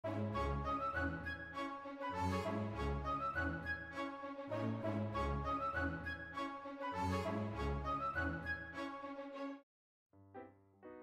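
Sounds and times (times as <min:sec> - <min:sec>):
instrumental background music: 0:00.0 - 0:09.6.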